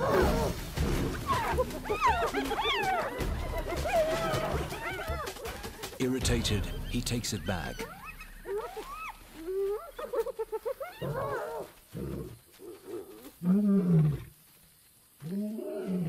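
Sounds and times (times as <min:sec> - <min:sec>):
hyenas whooping and giggling: 0:01.2 - 0:06.0, 0:07.7 - 0:14.2.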